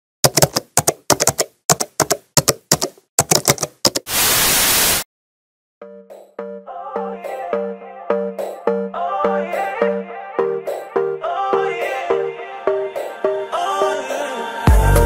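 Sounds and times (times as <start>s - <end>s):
keyboard key clicks: 0.2s - 4.1s
tv static hiss: 4.1s - 5.0s
electronic music: 5.8s - 15.0s.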